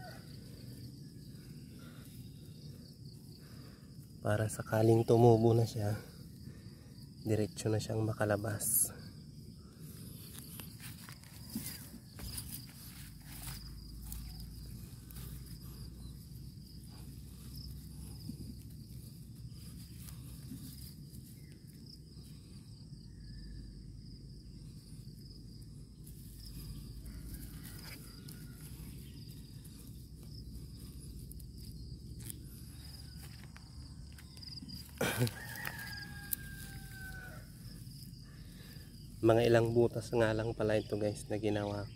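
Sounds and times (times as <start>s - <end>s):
insect drone: 0.0s - 41.9s
footsteps in dry straw: 10.2s - 16.8s, 26.1s - 37.7s.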